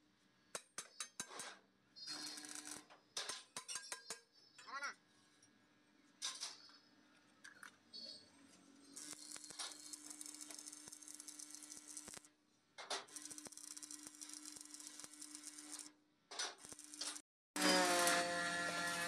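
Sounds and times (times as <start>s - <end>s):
welding arc crackling: 9.0s - 12.3s, 13.1s - 19.0s.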